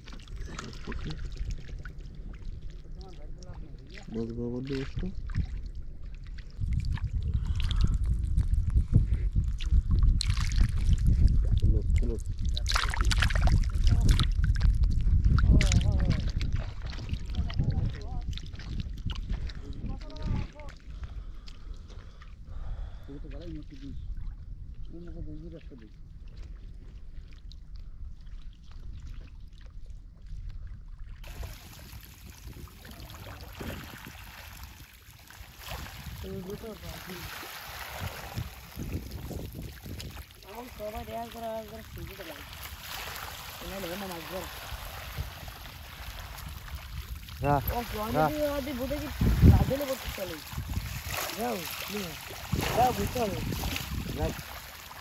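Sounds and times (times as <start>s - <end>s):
steady low rumble: 0.0s - 27.1s
water and mud sloshing: 0.0s - 55.0s
wet fishing net rustling: 31.3s - 55.0s.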